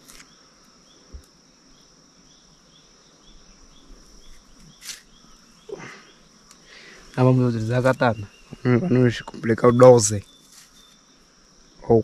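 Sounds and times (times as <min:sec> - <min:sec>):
skin peeling rustle: 0:00.0 - 0:00.3, 0:04.2 - 0:05.2, 0:10.3 - 0:11.0
insects buzzing: 0:00.0 - 0:12.0.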